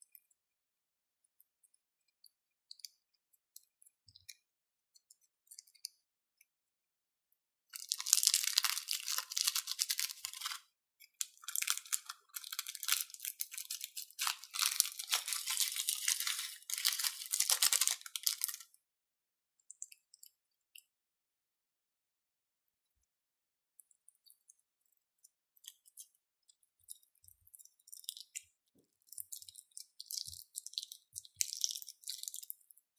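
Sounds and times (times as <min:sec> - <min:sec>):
plastic bag crinkling: 0:07.8 - 0:10.6, 0:11.2 - 0:18.6.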